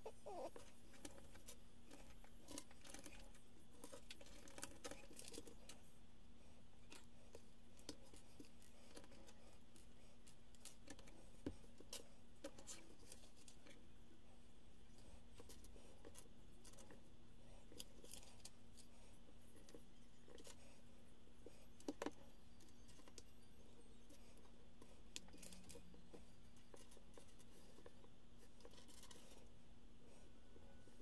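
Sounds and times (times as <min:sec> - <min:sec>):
lego pieces clicking and rustling: 0:00.2 - 0:05.8, 0:25.1 - 0:29.5.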